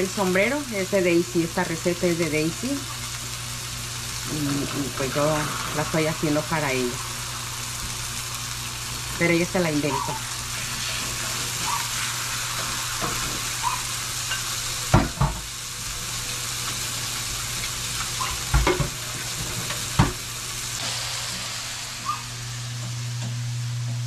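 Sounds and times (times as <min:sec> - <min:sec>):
chicken sizzling in skillet: 0:00.0 - 0:23.8.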